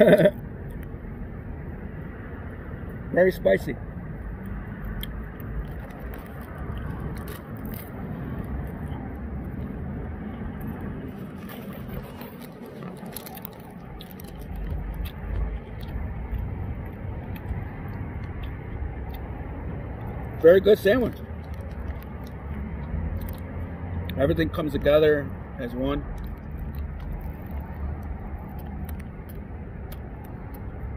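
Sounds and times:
street traffic rumble: 0:00.0 - 0:30.9
faint clicks and scrapes: 0:10.6 - 0:16.5, 0:21.1 - 0:23.5.

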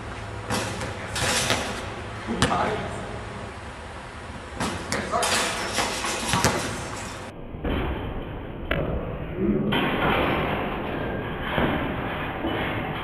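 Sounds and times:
ball slamming against rim and backboard: 0:00.4 - 0:02.9, 0:04.5 - 0:08.0.

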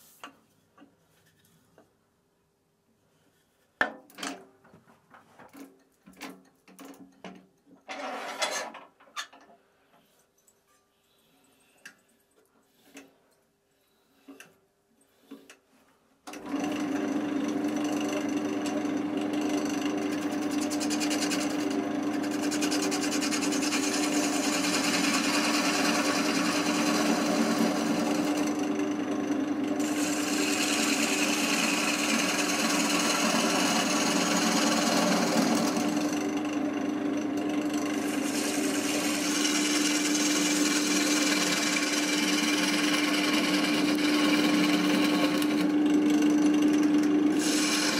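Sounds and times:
wood lathe humming: 0:16.3 - 0:47.9
gouge cutting wood hiss: 0:47.4 - 0:47.9.

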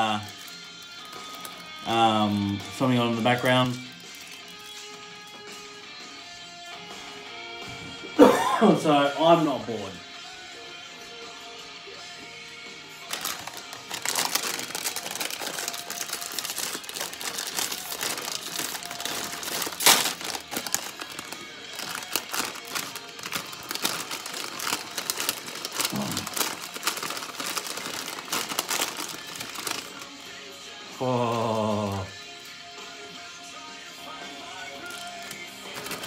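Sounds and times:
plastic packet crinkling: 0:00.0 - 0:05.0, 0:13.0 - 0:30.2, 0:34.6 - 0:36.0
sharp plastic crackle: 0:00.0 - 0:05.0, 0:13.0 - 0:30.2, 0:34.7 - 0:36.0.

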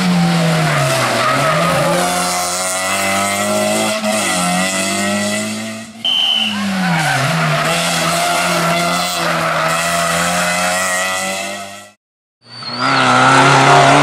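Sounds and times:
rally car engine revving: 0:00.0 - 0:12.0, 0:12.6 - 0:14.0
tyre squeal: 0:06.0 - 0:10.0, 0:12.4 - 0:13.6.

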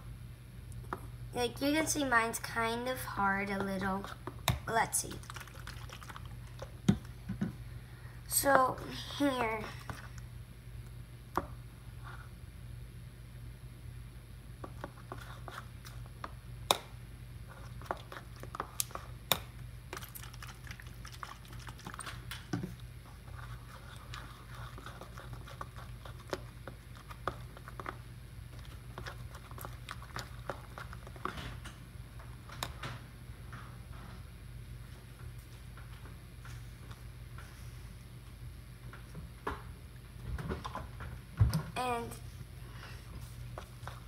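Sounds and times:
low background hum: 0:00.0 - 0:44.0
hands kneading wet slime: 0:02.3 - 0:07.4, 0:17.5 - 0:31.7.

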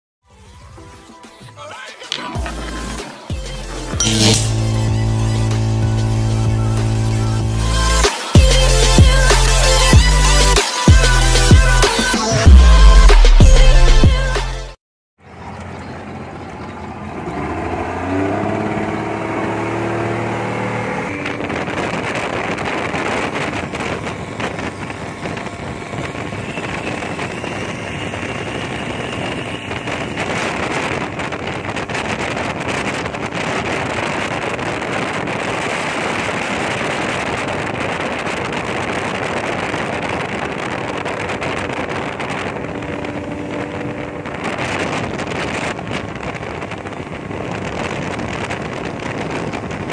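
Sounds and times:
speedboat engine speeding up: 0:03.9 - 0:09.8, 0:16.3 - 0:49.9
rush of wind and water: 0:16.5 - 0:49.9.

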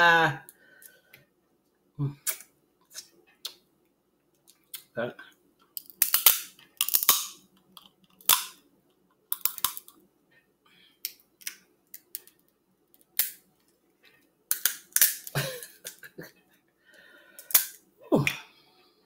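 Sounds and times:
crab shells cracking: 0:05.7 - 0:08.6, 0:09.3 - 0:10.0, 0:13.0 - 0:13.4, 0:14.5 - 0:16.0.

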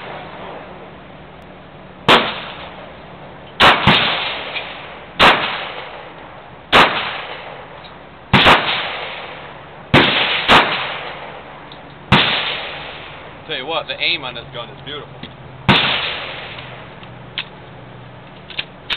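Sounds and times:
pistol shots with echo: 0:02.1 - 0:02.7, 0:03.6 - 0:06.1, 0:06.7 - 0:07.6, 0:08.3 - 0:11.4, 0:12.1 - 0:13.2, 0:15.7 - 0:16.6.

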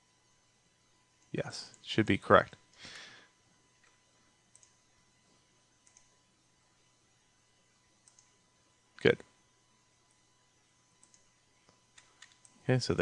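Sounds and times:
computer mouse clicks: 0:03.8 - 0:04.8, 0:05.8 - 0:06.1, 0:08.0 - 0:08.4, 0:11.0 - 0:12.6.

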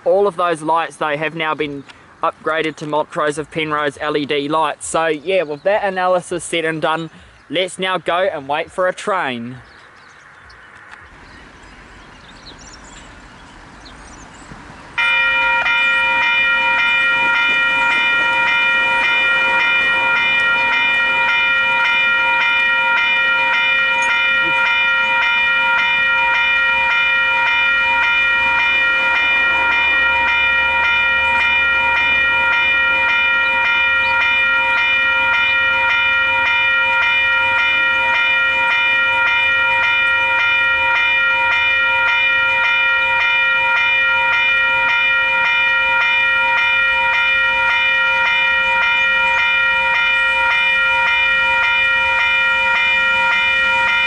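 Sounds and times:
level-crossing bells ringing: 0:15.0 - 0:54.0.

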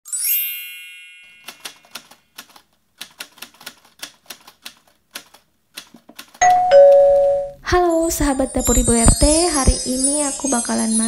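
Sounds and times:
typewriter key clicks: 0:01.5 - 0:06.4.

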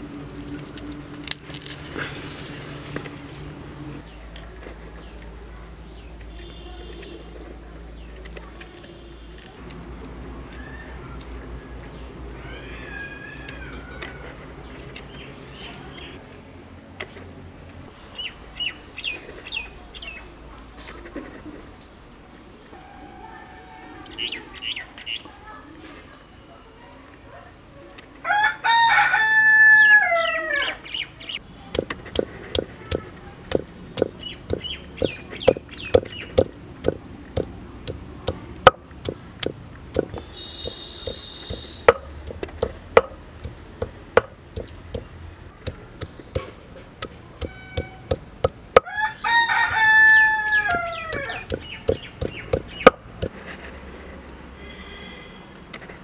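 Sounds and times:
rooster crowing: 0:28.2 - 0:30.8, 0:48.8 - 0:51.5
stone roller knocking grinding stone: 0:31.7 - 0:49.0, 0:50.6 - 0:53.4.

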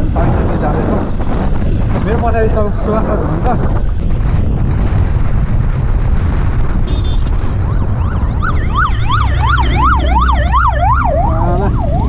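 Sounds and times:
motorcycle engine rumble: 0:00.0 - 0:12.0
emergency siren yelping: 0:07.6 - 0:12.0.

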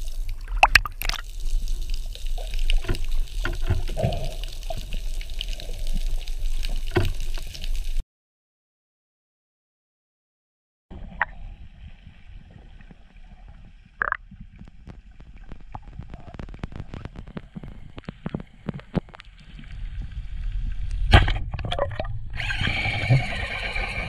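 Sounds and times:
underwater clicks and crackles: 0:00.0 - 0:08.0, 0:10.9 - 0:23.4
water rushing: 0:00.0 - 0:08.0.

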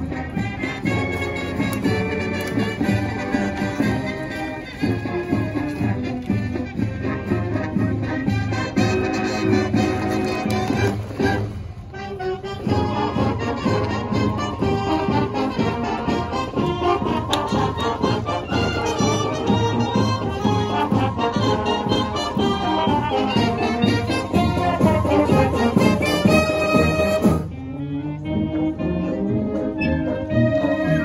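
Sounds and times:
marching band brass: 0:00.0 - 0:31.0
steady drum beat: 0:12.6 - 0:27.4.

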